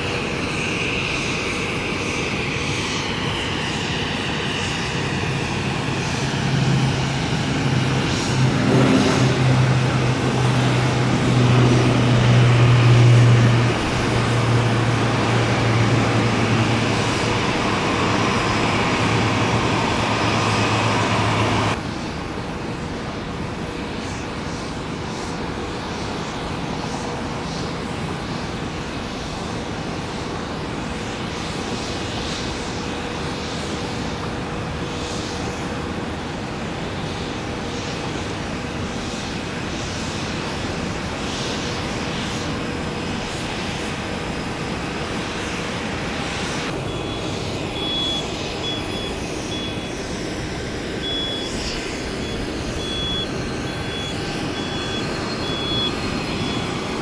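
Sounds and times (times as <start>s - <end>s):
jet engines landing: 0.0s - 57.0s
reversing beeper: 6.5s - 21.8s, 46.7s - 57.0s.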